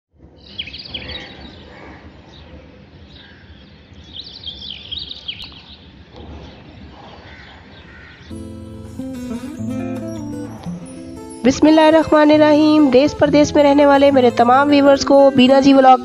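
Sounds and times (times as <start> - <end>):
outdoor background noise: 0.1 - 8.3.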